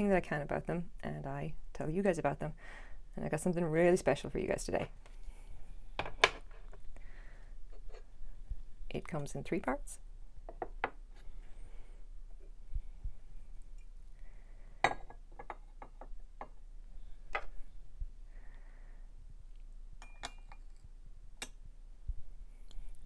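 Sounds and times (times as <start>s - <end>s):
porcelain cup and saucer clinking: 14.8s - 15.6s, 20.0s - 20.8s.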